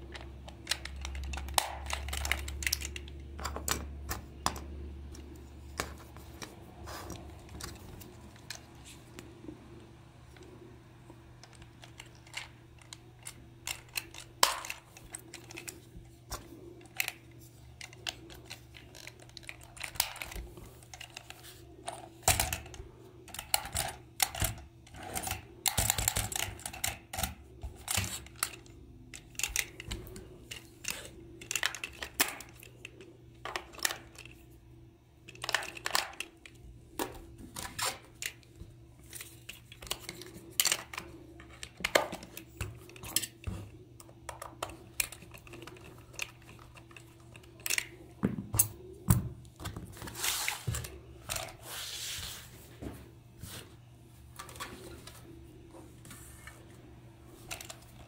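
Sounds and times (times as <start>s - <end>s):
faint steady hum: 0.0s - 58.0s
plastic toy parts clicking: 0.1s - 6.5s, 11.4s - 34.4s, 35.2s - 38.5s, 39.1s - 48.1s.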